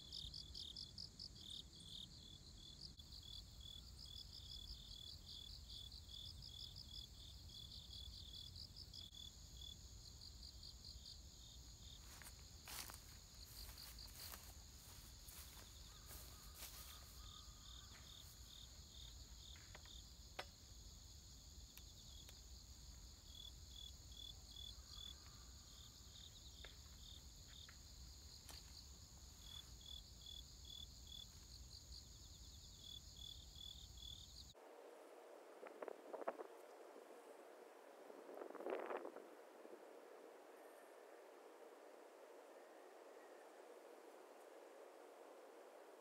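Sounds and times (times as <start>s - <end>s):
insects trilling: 0.0s - 34.6s
crickets chirping: 0.0s - 46.0s.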